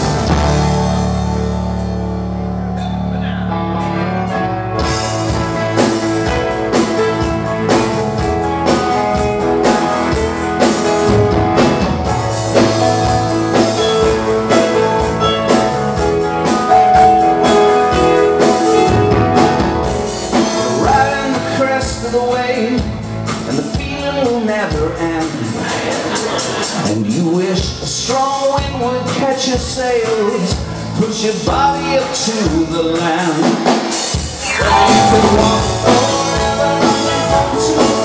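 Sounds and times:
electric guitar: 0:00.0 - 0:23.8, 0:34.3 - 0:38.0
bass guitar: 0:00.0 - 0:33.4, 0:34.1 - 0:38.0
drum kit beat: 0:04.8 - 0:26.8, 0:33.2 - 0:38.0.

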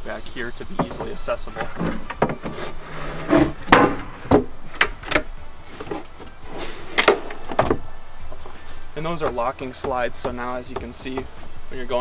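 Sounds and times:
wooden knocks and clicks: 0:00.8 - 0:02.6, 0:09.2 - 0:11.3
drawer sliding: 0:00.9 - 0:07.8.

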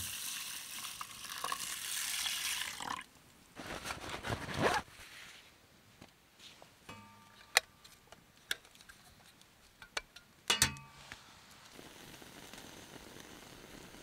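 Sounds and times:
soft steady hiss: 0:00.0 - 0:14.0
metallic clink: 0:06.9 - 0:08.0.

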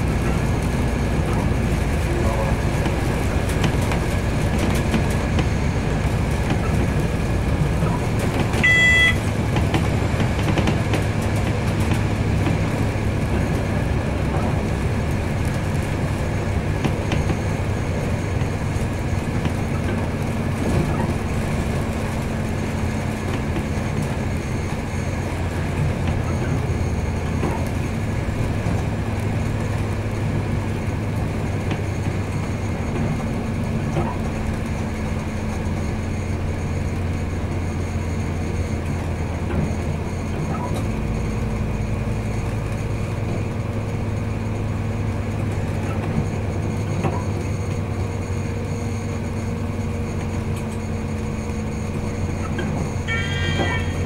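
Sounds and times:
train engine hum: 0:00.0 - 0:54.0
wheels rolling on rails: 0:00.0 - 0:54.0
high electronic beep: 0:08.6 - 0:09.2.

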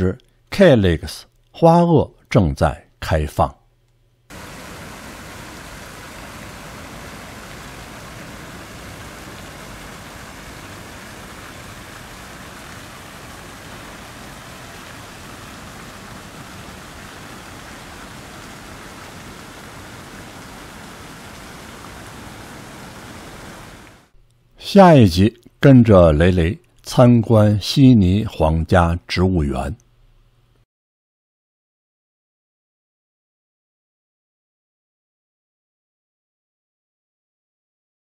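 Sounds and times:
falling water rushing: 0:04.3 - 0:24.1.

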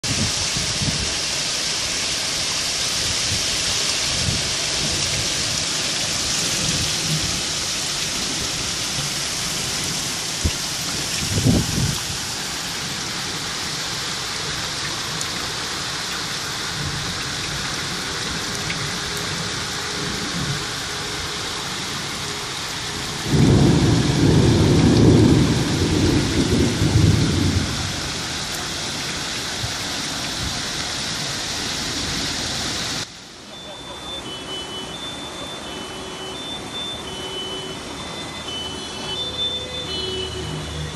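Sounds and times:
heavy rain pouring: 0:00.0 - 0:40.9
thunder rumbling: 0:22.0 - 0:29.8.

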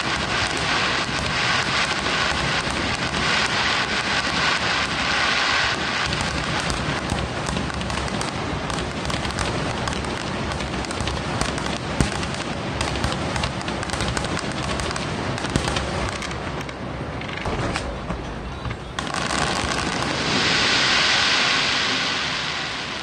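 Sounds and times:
fireworks crackling: 0:00.0 - 0:23.0.

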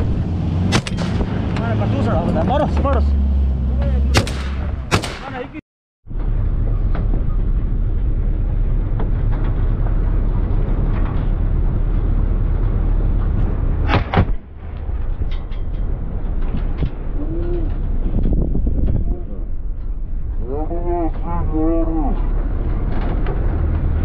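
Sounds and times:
vehicle driving over rough ground: 0:00.0 - 0:24.0
shotgun shots: 0:00.7 - 0:01.3, 0:04.1 - 0:05.6.

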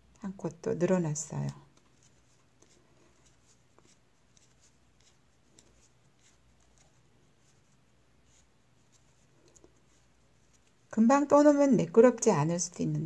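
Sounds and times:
knitting needles ticking and rustling: 0:00.0 - 0:12.8.

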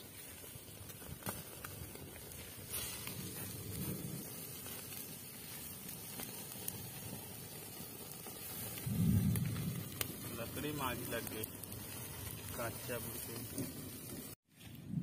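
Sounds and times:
wood fire hissing and crackling: 0:00.0 - 0:15.0
low rumble: 0:08.7 - 0:12.8.

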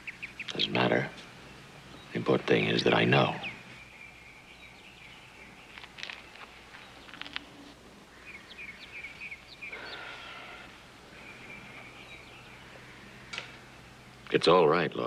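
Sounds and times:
low steady hum: 0:00.0 - 0:15.0
small birds chirping: 0:00.0 - 0:15.0.

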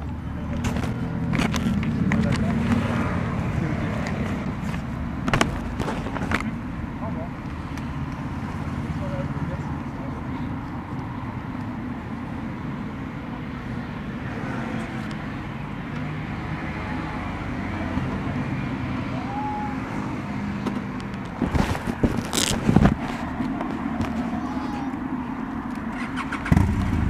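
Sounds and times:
motorcycle engine bursts: 0:25.9 - 0:27.0.

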